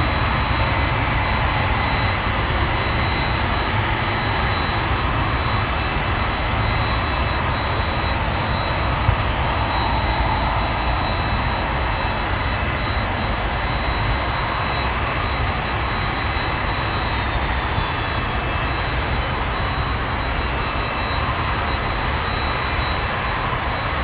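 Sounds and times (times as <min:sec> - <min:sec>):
jet engines running at low power: 0:00.0 - 0:24.0.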